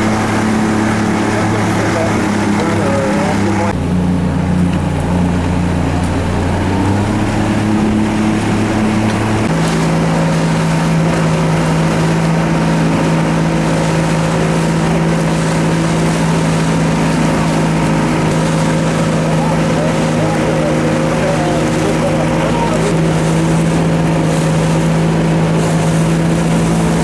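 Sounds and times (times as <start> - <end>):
motorboat engine running: 0.0 - 27.0
water: 0.0 - 27.0
wind: 0.0 - 27.0.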